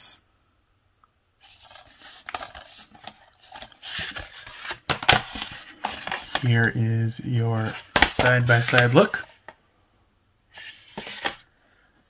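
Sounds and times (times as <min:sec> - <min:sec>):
cardboard scraping on plastic: 0:01.5 - 0:06.5, 0:10.6 - 0:11.4.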